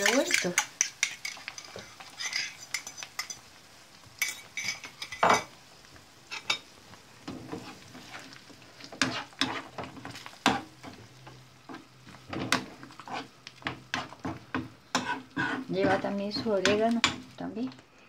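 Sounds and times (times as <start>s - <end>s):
metal spoon scraping a pan: 0.0s - 3.5s, 4.2s - 5.5s, 7.4s - 11.0s, 11.7s - 17.2s
faint egg sizzle: 0.0s - 18.0s.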